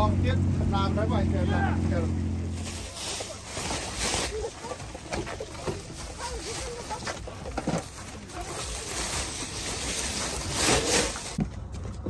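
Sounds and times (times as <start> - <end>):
plastic sheet crinkling: 2.5 - 11.4.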